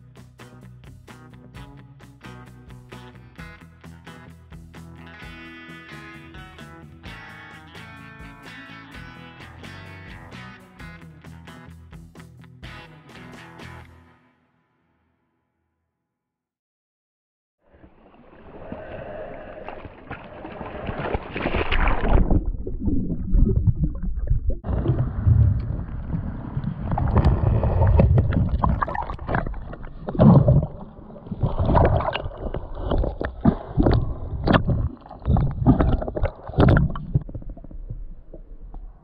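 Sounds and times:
muffled underwater rumble: 21.9 - 39.0.

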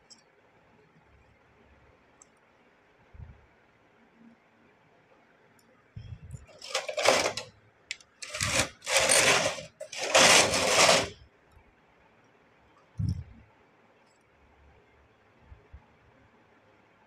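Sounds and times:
knitting machine carriage whirring: 6.4 - 7.5, 8.2 - 11.2.

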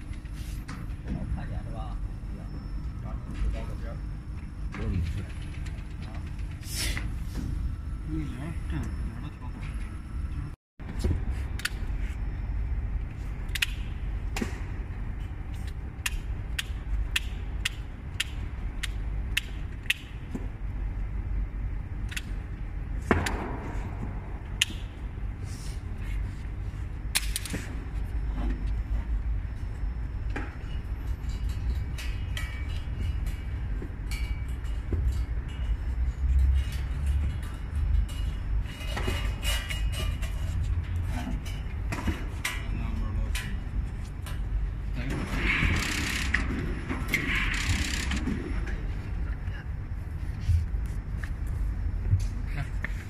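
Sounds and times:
low machine hum: 0.0 - 53.0.

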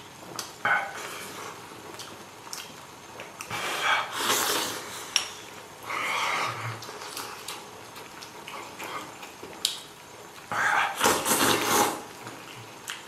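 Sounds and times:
slurping and eating: 3.4 - 7.7, 10.4 - 13.0.

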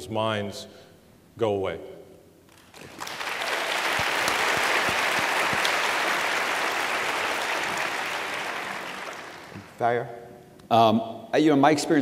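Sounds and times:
audience applauding: 2.5 - 9.8.

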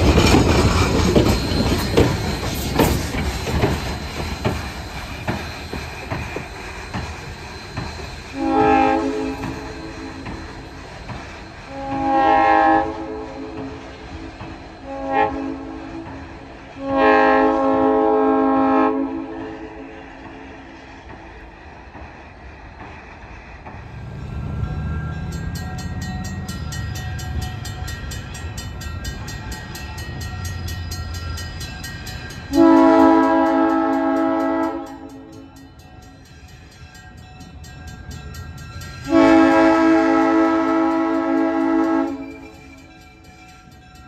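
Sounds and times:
crossing bell ringing: 0.0 - 17.7, 24.1 - 44.0
train rumbling: 0.0 - 44.0
locomotive air horn blasts: 8.4 - 10.1, 11.7 - 13.8, 14.8 - 16.0, 16.8 - 19.5, 32.5 - 35.4, 39.1 - 42.5.

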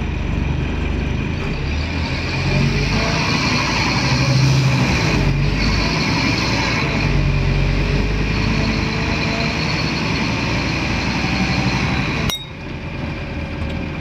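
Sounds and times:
bus diesel engine: 0.0 - 14.0
road noise: 0.0 - 14.0.

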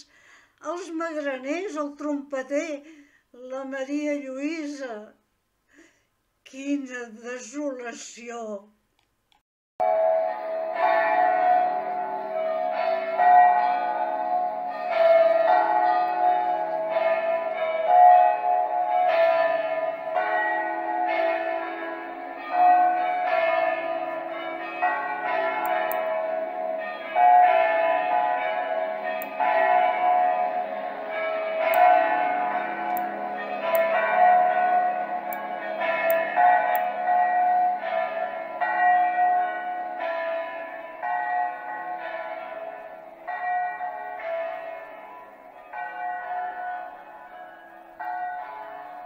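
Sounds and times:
bells pealing: 9.8 - 49.0.

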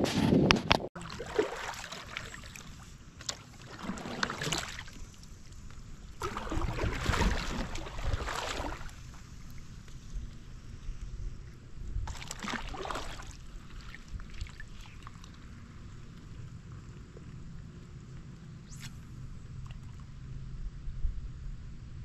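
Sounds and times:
water sloshing against kayak: 1.0 - 20.4.

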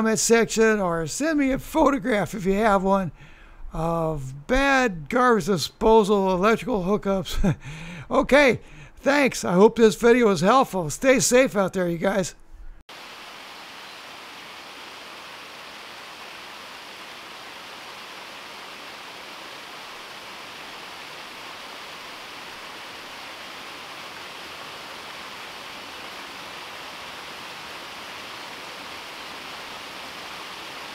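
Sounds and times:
waterfall splashing over rocks: 12.9 - 30.9.

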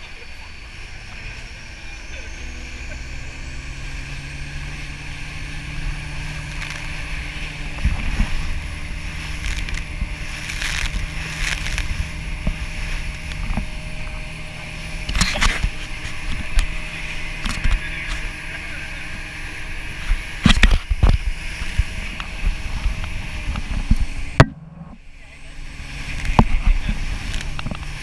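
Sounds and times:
motorboat engine running: 0.0 - 28.0
rush of wind and water: 2.4 - 24.6, 25.6 - 28.0
thumps: 23.8 - 25.0.

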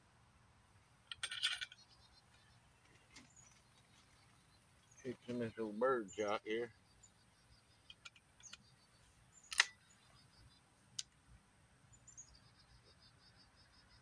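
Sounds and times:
shotgun shell loading clicks: 9.5 - 9.8.

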